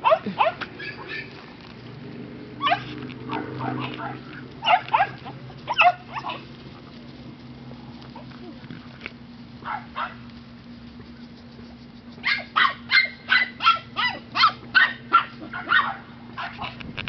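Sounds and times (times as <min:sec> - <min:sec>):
puppy yipping: 0:00.0 - 0:01.5, 0:02.6 - 0:06.5, 0:09.6 - 0:10.2, 0:12.1 - 0:16.8.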